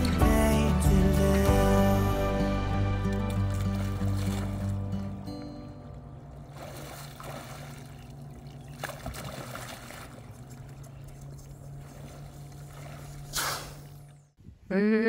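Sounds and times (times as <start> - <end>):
low hum: 0.0 - 15.0
water sloshing and splashing: 2.8 - 14.3
sharp splash: 3.1 - 5.1, 6.5 - 10.9, 11.7 - 14.1.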